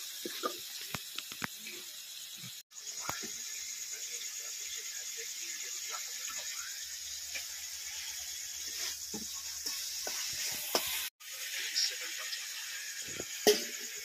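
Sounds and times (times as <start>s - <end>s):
onions sizzling in wok: 0.0s - 14.0s
steel pots and spatula clinking: 7.2s - 14.0s.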